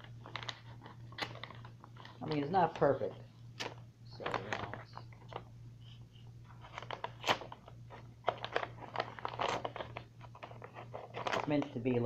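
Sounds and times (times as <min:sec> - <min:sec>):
paper envelope being torn open: 0:00.0 - 0:02.5, 0:06.5 - 0:11.7
low steady hum: 0:00.0 - 0:12.0.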